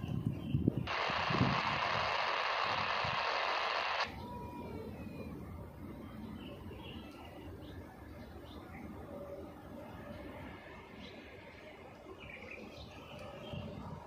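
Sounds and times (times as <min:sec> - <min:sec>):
radio static hissing: 0:00.9 - 0:04.1.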